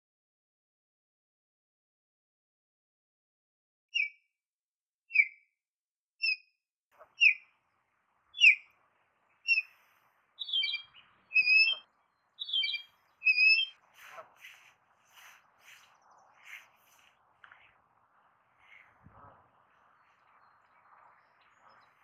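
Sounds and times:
goslings peeping: 0:08.4 - 0:08.8, 0:10.4 - 0:17.1.

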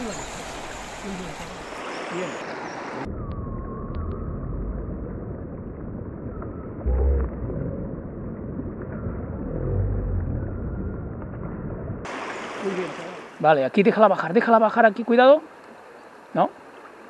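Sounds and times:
river water rushing: 0:00.0 - 0:03.1, 0:12.1 - 0:17.0
wind rumble on microphone: 0:03.1 - 0:12.1.

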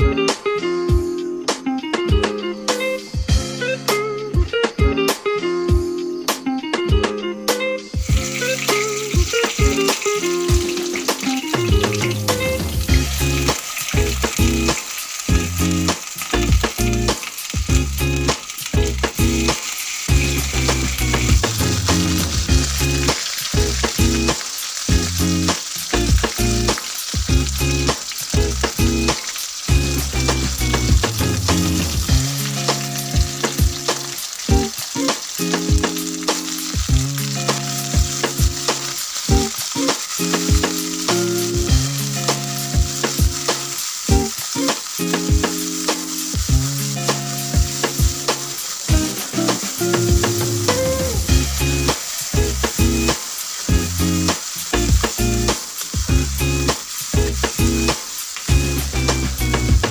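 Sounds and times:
egg sizzling in hot oil: 0:08.0 - 0:59.9.

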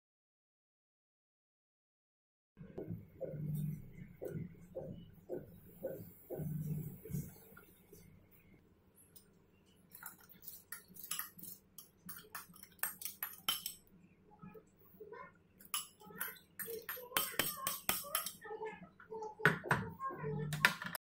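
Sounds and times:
spoon scraping glass bowl: 0:09.9 - 0:13.8
clinks against bowl and pot: 0:10.0 - 0:13.8, 0:15.6 - 0:18.4.

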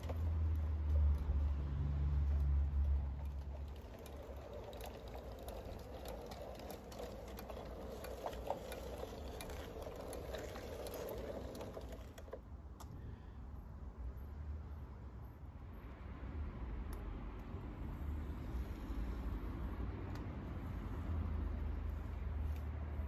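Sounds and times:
wagons rattling: 0:00.0 - 0:01.0, 0:02.2 - 0:12.4
train wheels clicking over rail joints: 0:00.0 - 0:12.9
locomotive mechanical hum: 0:00.0 - 0:13.0.

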